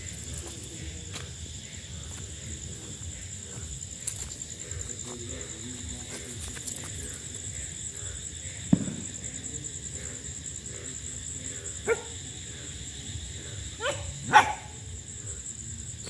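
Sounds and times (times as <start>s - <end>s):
crickets chirping: 0.0s - 16.0s
dog barking: 11.8s - 12.2s, 13.8s - 14.8s.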